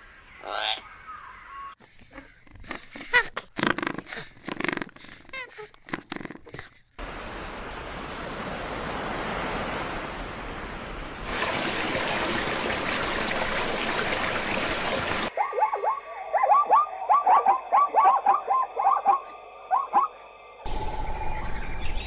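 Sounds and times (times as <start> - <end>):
river water rushing: 7.0 - 15.3
water splashing: 7.0 - 15.3.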